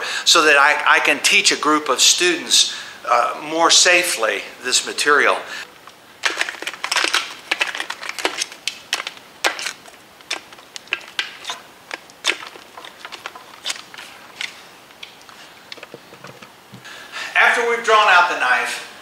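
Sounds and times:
plastic clicking and scraping: 6.2s - 16.8s.

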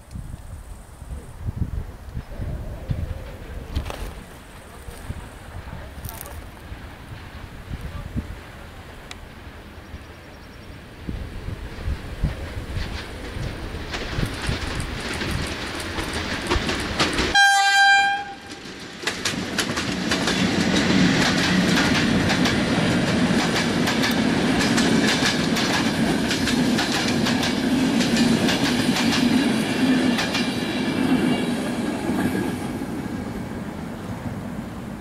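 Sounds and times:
train rolling past: 0.3s - 35.0s
wheels clicking over rail joints: 11.8s - 32.8s
locomotive horn blast: 17.3s - 18.6s.

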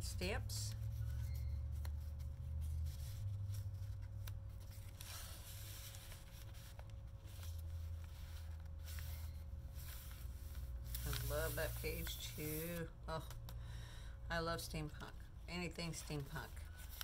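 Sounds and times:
steady low hum: 0.0s - 17.0s
paper rustling: 0.8s - 12.9s.

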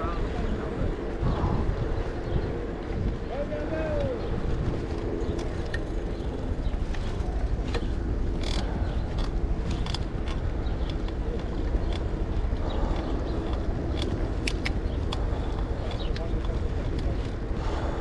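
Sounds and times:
wind rumble on microphone: 0.0s - 18.0s
bike clicks and creaks: 3.9s - 18.0s.

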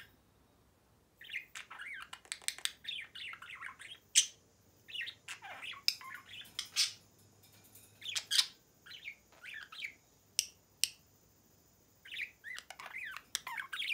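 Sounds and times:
budgerigar chattering: 1.2s - 7.0s.

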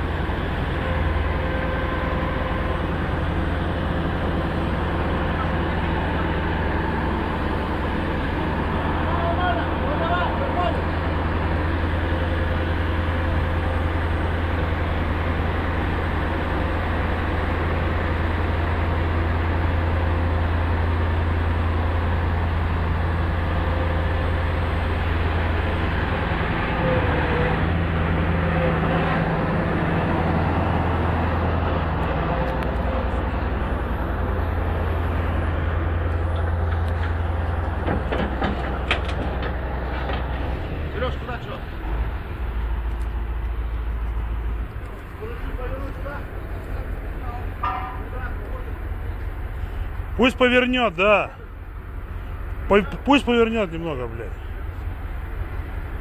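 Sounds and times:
excavator diesel engine under load: 0.0s - 56.0s
metallic knocks: 47.6s - 48.3s.

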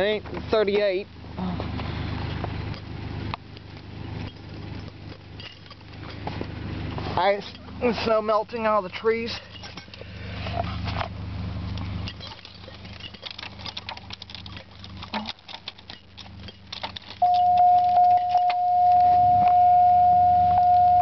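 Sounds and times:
keys clinking and rattling: 3.8s - 6.3s, 12.1s - 19.0s
loud high-pitched tone: 17.2s - 21.0s.

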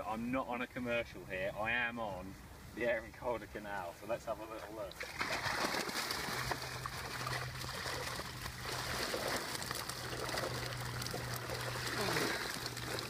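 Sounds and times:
low steady hum: 0.0s - 13.0s
water streaming and trickling: 4.6s - 13.0s.

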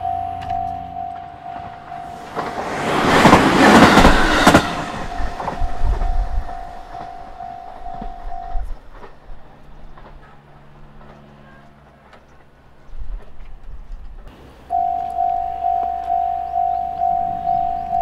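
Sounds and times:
level crossing bell ringing: 0.0s - 2.7s, 5.0s - 8.7s, 14.7s - 18.0s
train rushing past: 0.0s - 12.8s, 14.2s - 18.0s
wheels clacking over rail joints: 0.0s - 18.0s.

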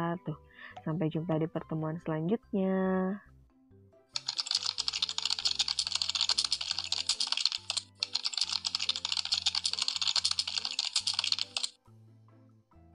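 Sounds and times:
soft background music: 0.0s - 12.9s
keyboard key clicks: 4.2s - 11.8s.

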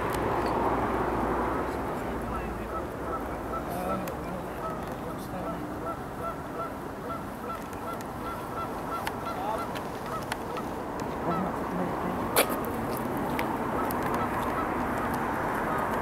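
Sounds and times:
geese honking: 2.3s - 12.6s, 13.6s - 16.0s.

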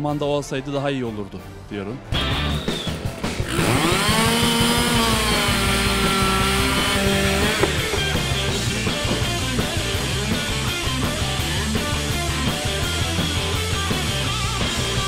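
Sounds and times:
rock music: 2.1s - 15.0s
chainsaw cutting log: 3.3s - 10.4s.

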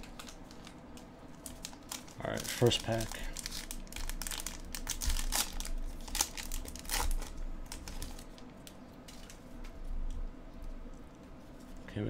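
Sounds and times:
soft rustling of cards: 0.0s - 12.0s
card pack wrapper tearing: 1.4s - 8.5s.

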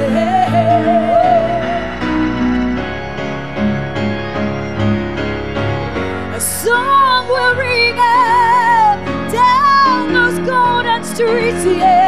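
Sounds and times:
woman singing with vibrato: 0.0s - 2.0s, 6.3s - 12.0s
band playing held chords: 0.0s - 7.5s.

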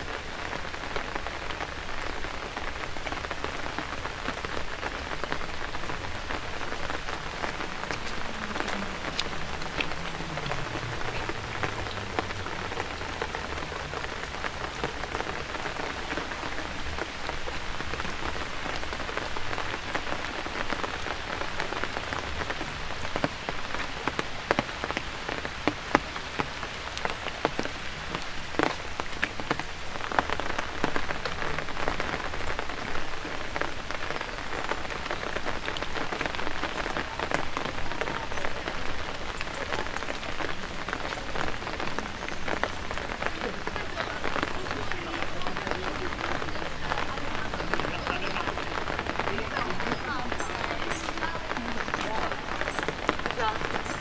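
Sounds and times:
rain on wet paving: 0.0s - 54.0s.

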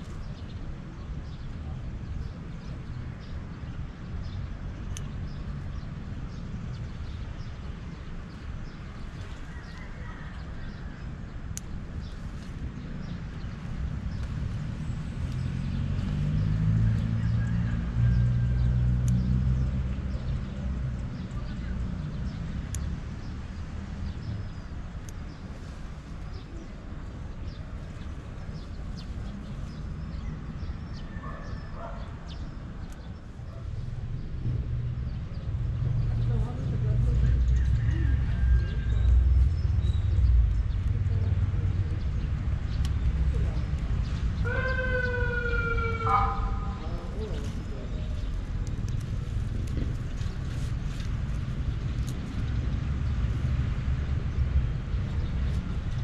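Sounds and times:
small birds chirping: 19.0s - 56.0s
steady low rumble: 46.0s - 56.0s.

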